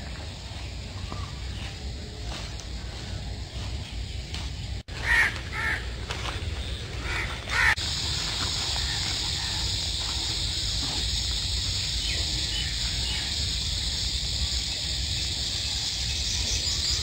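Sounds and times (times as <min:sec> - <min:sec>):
insect chorus: 0:00.0 - 0:17.0.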